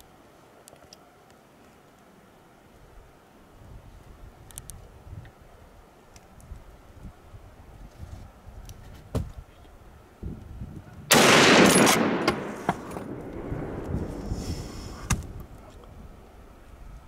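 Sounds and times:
rifle shot echoing: 11.1 - 14.2.

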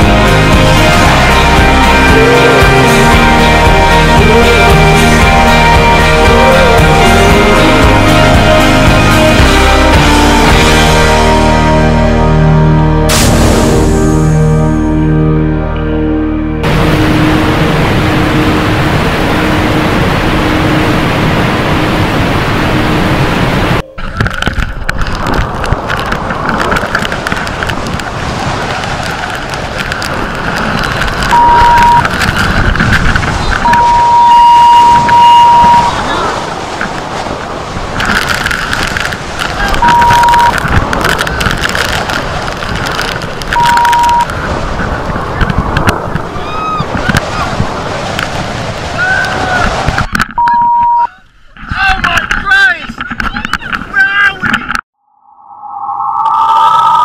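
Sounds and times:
waterfall roaring: 0.0 - 12.1, 16.6 - 50.4
wind buffeting microphone: 16.6 - 50.5
high beep: 31.3 - 32.0, 33.6 - 36.0, 39.8 - 40.6, 43.6 - 44.3, 50.4 - 51.1.

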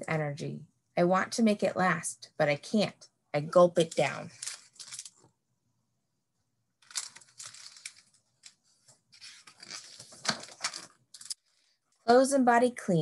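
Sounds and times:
paper pages rustling and flapping: 4.3 - 5.3, 6.8 - 11.4.

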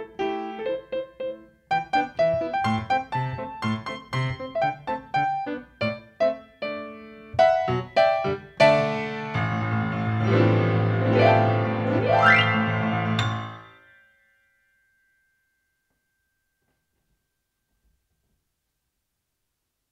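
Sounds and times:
grand piano chords: 0.0 - 13.9.

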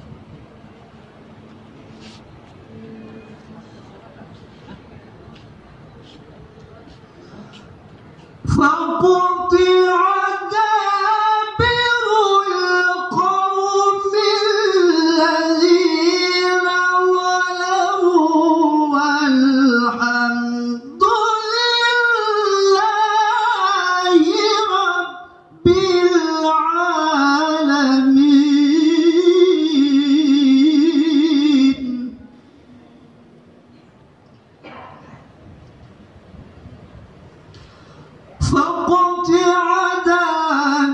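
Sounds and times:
man reciting melodically: 7.3 - 32.5, 38.3 - 40.9.

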